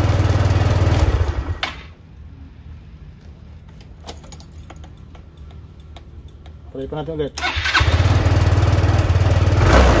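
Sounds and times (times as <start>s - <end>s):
scooter engine idling: 0.0s - 1.6s, 7.4s - 9.7s.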